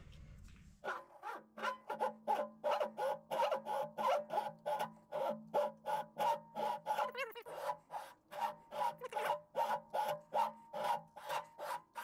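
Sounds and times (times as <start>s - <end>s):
low machine hum: 0.0s - 0.7s
lathe tool scraping metal: 1.9s - 12.0s.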